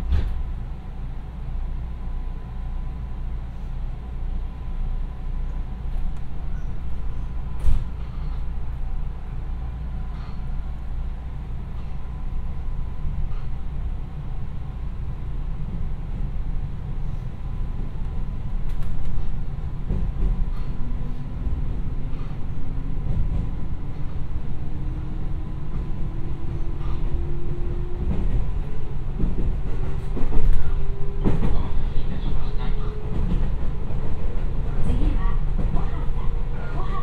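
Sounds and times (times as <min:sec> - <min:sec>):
train wheels rumbling on rail: 0:00.0 - 0:37.0
rail-joint clicks: 0:05.9 - 0:08.5, 0:11.6 - 0:12.1, 0:18.0 - 0:24.3, 0:25.7 - 0:36.9.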